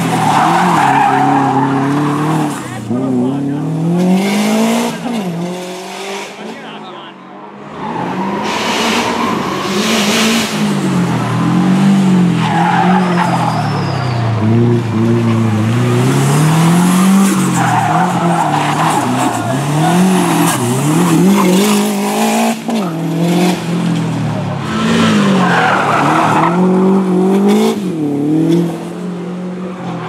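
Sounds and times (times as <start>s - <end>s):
car engine revving hard: 0.0s - 6.8s, 7.7s - 13.4s, 14.3s - 29.6s
tyres squealing: 12.4s - 14.6s.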